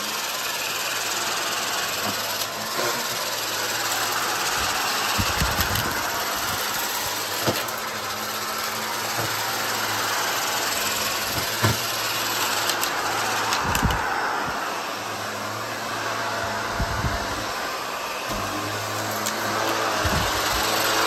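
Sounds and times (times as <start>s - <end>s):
vacuum cleaner running: 0.0s - 21.0s
debris clicking in vacuum: 11.2s - 14.0s.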